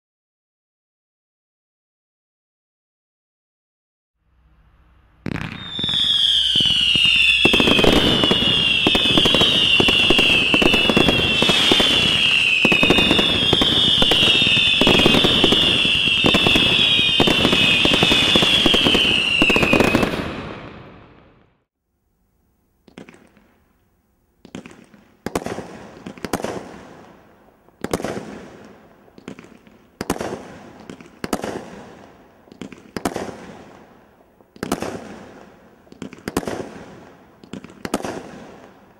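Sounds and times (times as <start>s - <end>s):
fireworks crackling: 4.4s - 21.5s, 24.4s - 38.9s
firework shots: 4.8s - 21.5s, 24.4s - 27.2s, 27.8s - 33.9s, 34.6s - 38.9s
falling whistle: 5.2s - 20.4s.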